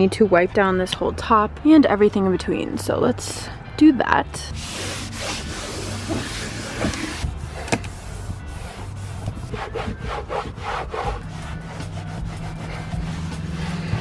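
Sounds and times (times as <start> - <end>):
wipe scrubbing car interior: 4.6 - 14.0.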